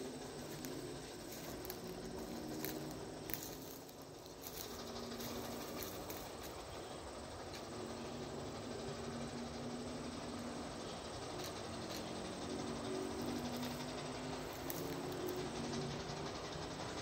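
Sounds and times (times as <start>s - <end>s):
insects buzzing: 0.0s - 17.0s
small ticks: 0.2s - 6.8s, 11.2s - 16.6s.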